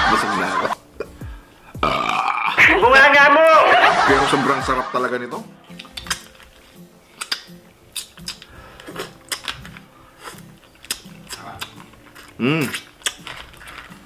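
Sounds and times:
wet mouth smacks: 0:05.7 - 0:06.5, 0:07.2 - 0:14.0
lobster shell cracking: 0:05.7 - 0:06.6, 0:07.2 - 0:14.0
person humming: 0:12.4 - 0:12.8.

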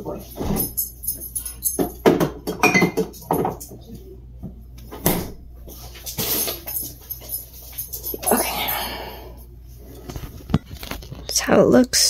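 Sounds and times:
bottles and jars clinking: 0:00.3 - 0:03.8.

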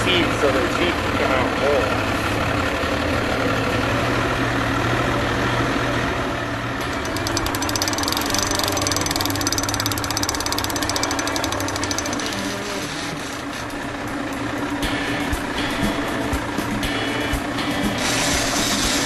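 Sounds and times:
boat motor humming: 0:06.8 - 0:19.0
fishing reel clicking: 0:07.0 - 0:13.4.

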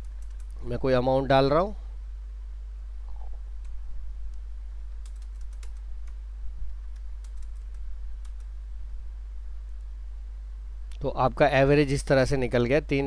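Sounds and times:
steady low hum: 0:00.0 - 0:13.0
computer keyboard key clicks: 0:05.0 - 0:06.2.

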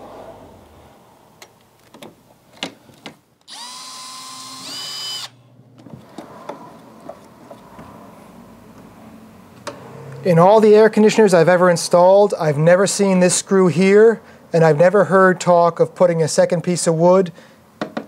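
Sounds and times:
cordless drill whining: 0:03.5 - 0:05.4.

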